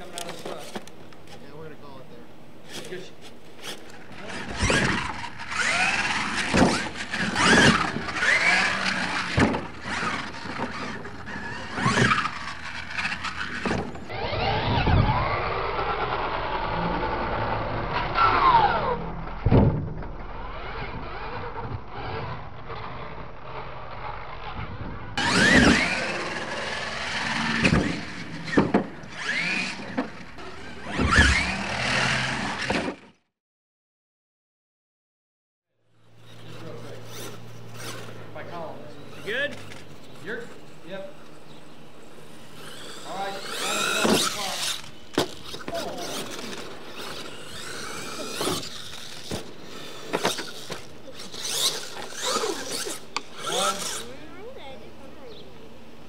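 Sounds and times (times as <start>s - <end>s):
tyres scrabbling on dirt: 2.6s - 14.8s, 42.3s - 54.2s
electric motor whining: 3.6s - 19.5s, 20.1s - 33.1s, 36.0s - 55.8s.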